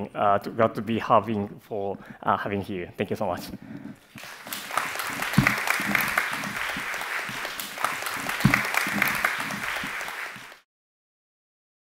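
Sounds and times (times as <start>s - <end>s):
audience applauding: 4.2s - 10.6s.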